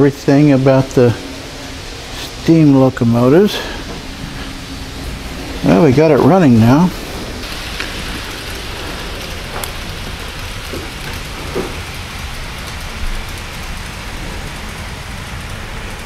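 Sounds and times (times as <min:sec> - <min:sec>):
model train wheels rumbling on rail: 0:00.0 - 0:16.0.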